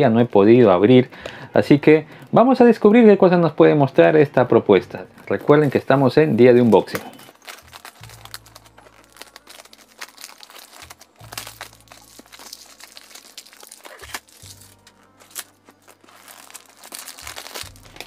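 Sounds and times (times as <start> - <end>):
quiet background music: 0.0 - 18.0
plastic wrap crinkling and tearing: 5.2 - 18.0.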